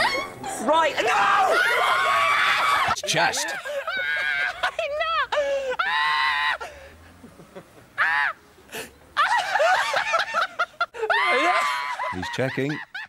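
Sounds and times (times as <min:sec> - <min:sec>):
man laughing in high-pitched shrieks: 0:01.4 - 0:06.8, 0:07.4 - 0:13.0.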